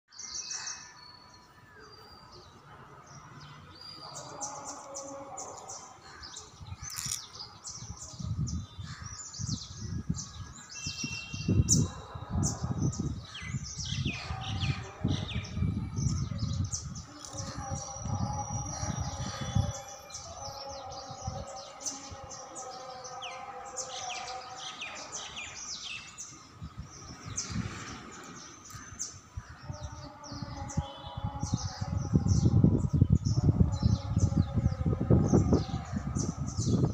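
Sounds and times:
small birds chirping: 0:00.1 - 0:36.9
low rumble on microphone: 0:26.6 - 0:36.9.

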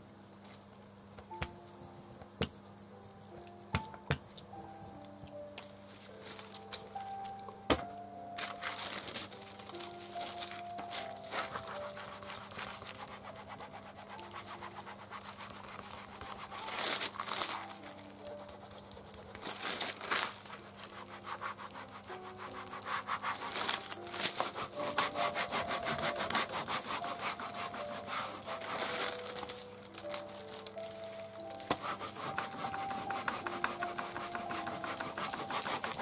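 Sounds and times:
baren rubbing paper: 0:09.0 - 0:36.0.

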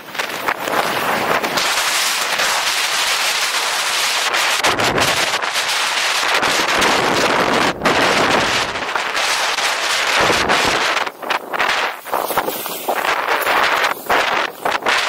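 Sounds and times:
skis scraping over snow: 0:00.0 - 0:15.0
wind rumbling on microphone: 0:00.0 - 0:15.0.

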